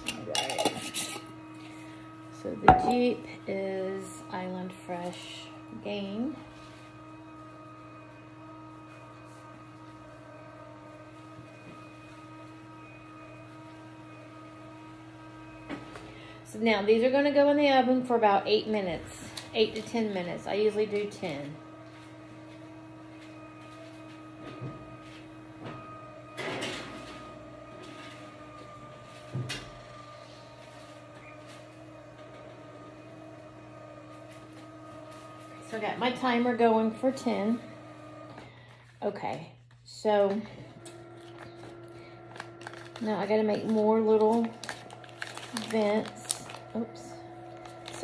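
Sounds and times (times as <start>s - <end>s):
mechanical hum: 0.0s - 48.0s
low hum: 2.4s - 3.9s.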